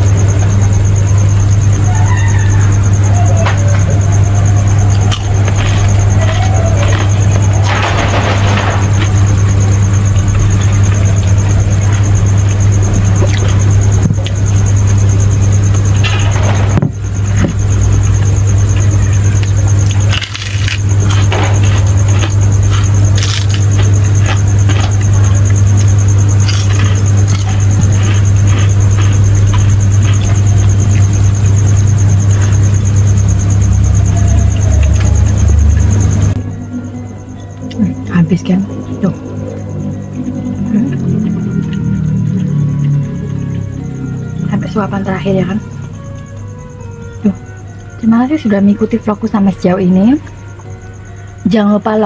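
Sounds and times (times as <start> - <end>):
loud low hum: 0.0 - 51.6
high-pitched whine: 0.0 - 52.0.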